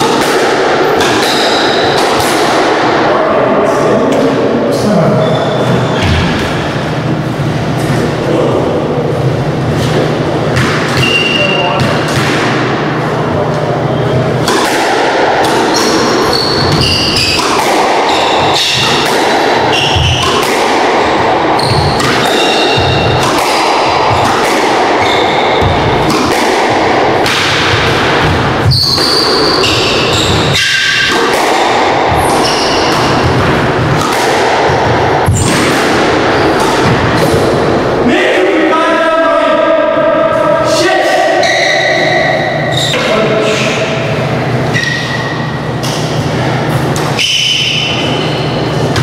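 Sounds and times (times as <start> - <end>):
shoes squeaking on wooden floor: 5.2 - 6.5, 28.6 - 30.5
squash ball cracking off rackets: 14.4 - 37.7.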